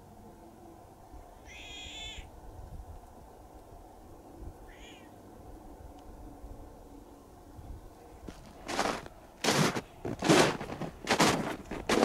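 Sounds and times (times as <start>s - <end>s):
low steady background noise: 0.0s - 12.0s
high-pitched animal calls: 1.4s - 2.3s, 4.6s - 5.2s.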